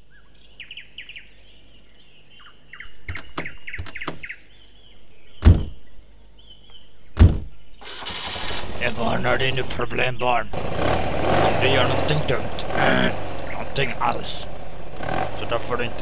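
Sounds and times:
small birds chirping: 0.0s - 8.2s, 8.8s - 16.0s
car door clicks and knocks: 3.1s - 4.3s, 5.4s - 5.8s, 7.2s - 7.5s
heavy car door thuds: 5.4s - 5.8s, 7.2s - 7.6s.

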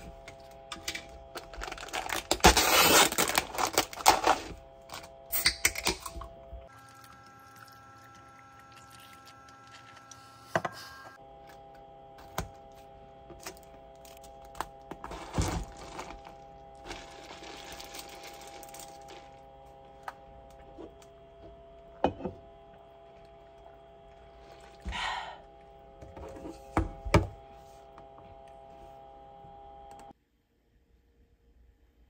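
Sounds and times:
rustling handling noises: 13.5s - 19.3s.

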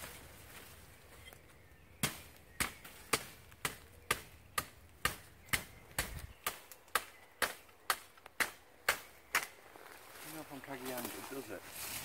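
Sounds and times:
shovel chopping into undergrowth: 2.0s - 9.6s.

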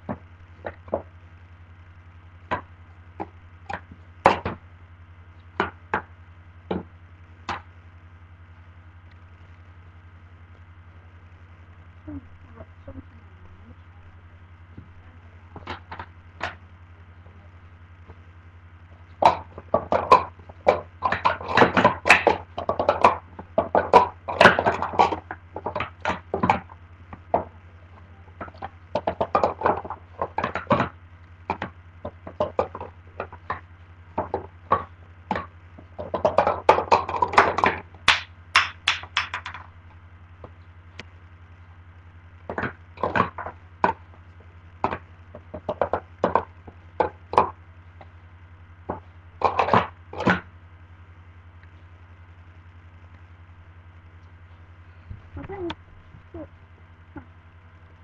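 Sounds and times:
low hum: 0.0s - 58.0s
plastic cups clacking: 15.5s - 16.6s, 19.2s - 27.5s, 28.3s - 39.7s, 42.5s - 44.2s, 44.8s - 48.1s, 48.9s - 50.4s.

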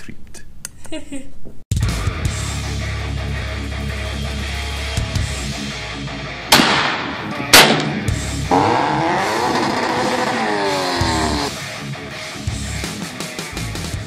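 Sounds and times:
heavy rock music: 1.7s - 14.0s
car engine revving: 8.4s - 11.6s.

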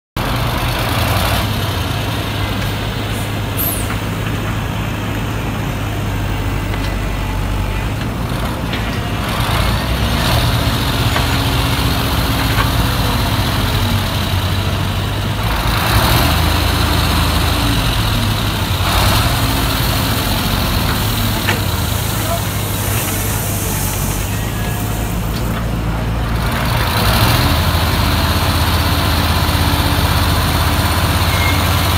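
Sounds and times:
excavator diesel engine droning: 0.2s - 31.9s
bucket scraping gravel: 21.5s - 25.3s.

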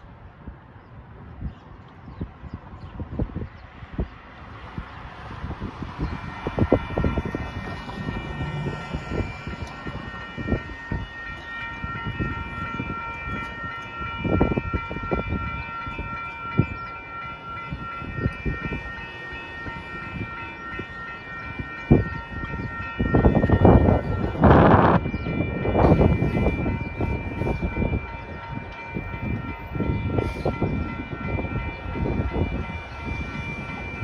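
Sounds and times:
wind thumping on microphone: 1.0s - 11.1s, 21.9s - 34.0s
railroad crossing bell ringing: 5.5s - 34.0s.

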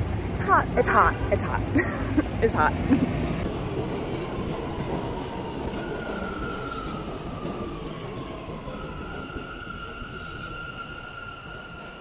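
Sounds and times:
subway train rumble: 0.0s - 12.0s.

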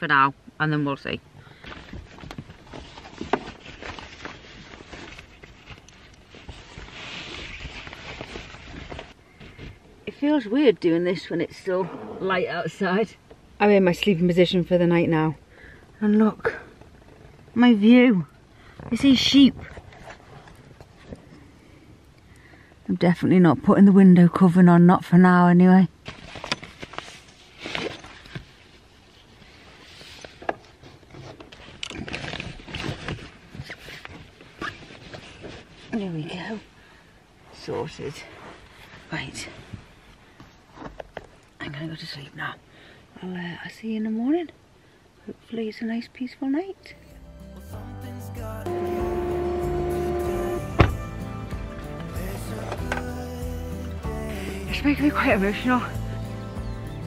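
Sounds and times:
cloth rustling: 1.8s - 9.5s
knocks and bumps: 50.6s - 51.2s.

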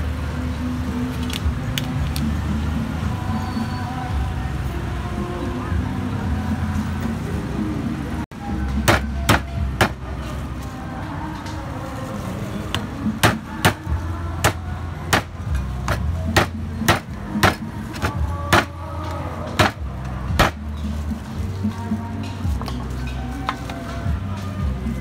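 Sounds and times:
cleaver chopping meat on wood: 13.2s - 13.8s, 14.4s - 18.8s, 19.6s - 19.8s.

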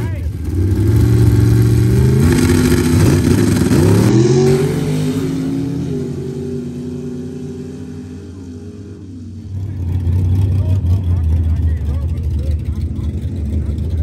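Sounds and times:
racing engine at full throttle: 0.0s - 14.0s.

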